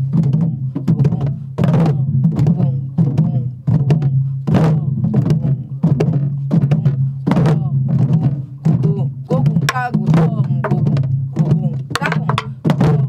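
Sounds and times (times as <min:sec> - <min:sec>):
deep drum booms: 0:00.0 - 0:13.0
stick clacking on drum shell: 0:11.9 - 0:12.6.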